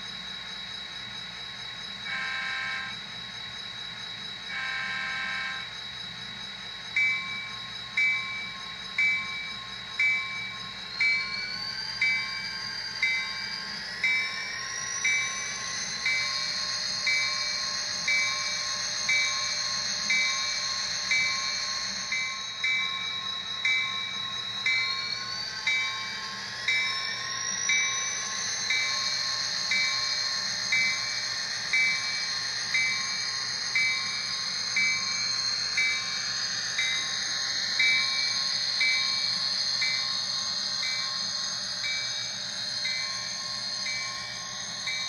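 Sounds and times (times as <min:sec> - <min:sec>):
diesel engine whine: 0:00.0 - 0:45.0
model locomotive horn blast: 0:02.1 - 0:03.0, 0:04.5 - 0:05.7
locomotive bell ringing: 0:21.1 - 0:28.0, 0:36.8 - 0:37.1, 0:37.7 - 0:40.2, 0:40.8 - 0:41.2, 0:41.8 - 0:45.0.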